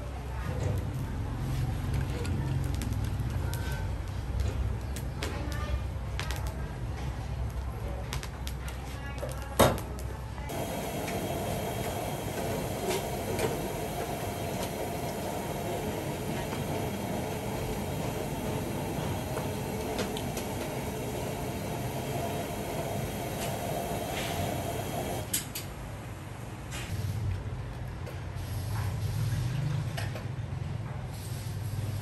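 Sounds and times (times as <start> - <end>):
mechanical rumble with hum: 10.5 - 25.3.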